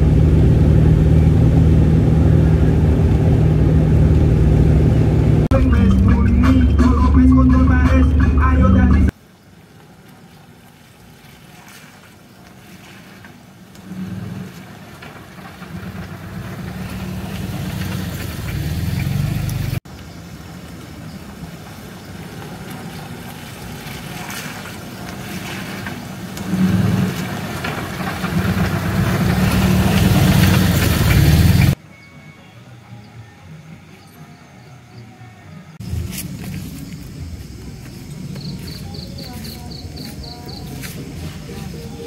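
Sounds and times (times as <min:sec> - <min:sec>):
car engine hum: 0:00.0 - 0:11.2, 0:13.0 - 0:31.8, 0:35.7 - 0:42.0
tyres hissing on wet road: 0:09.1 - 0:31.8, 0:35.8 - 0:42.0.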